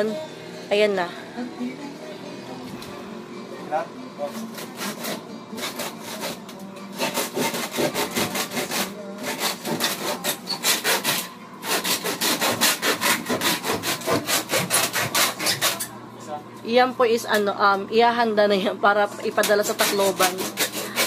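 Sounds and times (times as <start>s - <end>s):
handsaw cutting wood: 4.2s - 15.9s, 19.4s - 21.0s.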